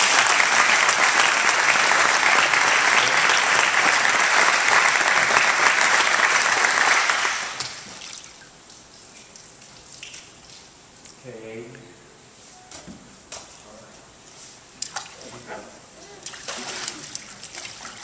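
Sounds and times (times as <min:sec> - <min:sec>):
congregation applauding: 0:00.0 - 0:07.8.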